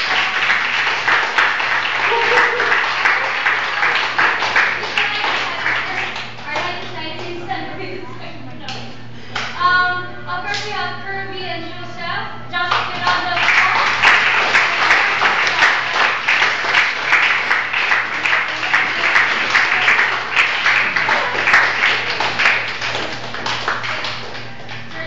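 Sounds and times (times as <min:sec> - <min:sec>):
audience applauding: 0:00.0 - 0:07.3, 0:13.0 - 0:25.0.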